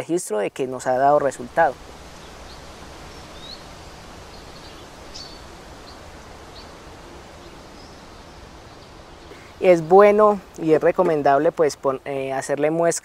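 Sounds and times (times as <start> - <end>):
steady background hiss: 0.0 - 13.0
faint bird chirps: 1.3 - 11.2.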